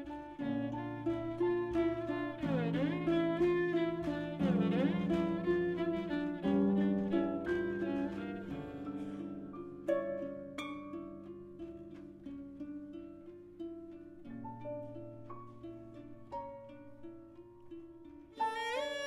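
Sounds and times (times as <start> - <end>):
violin sliding held notes: 0.0 - 9.5, 18.4 - 19.0
plucked harp notes: 0.0 - 19.0.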